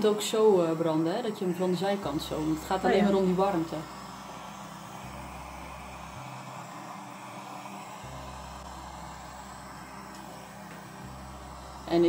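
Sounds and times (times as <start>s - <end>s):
butane torch hissing: 0.0s - 12.0s.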